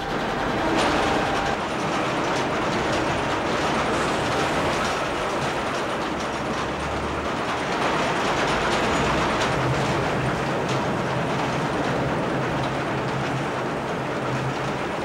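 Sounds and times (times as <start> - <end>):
mining machine mechanical din: 0.0 - 5.7.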